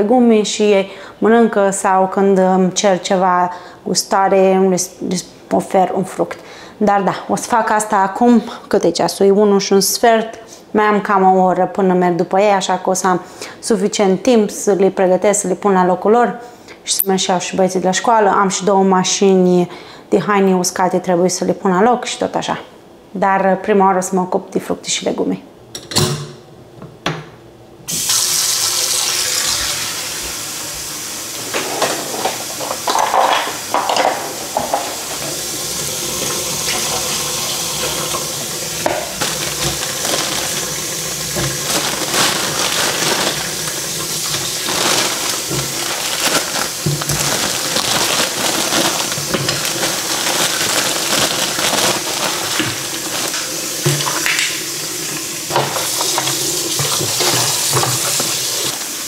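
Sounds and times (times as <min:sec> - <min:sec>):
water running into metal sink: 0:27.9 - 0:59.0.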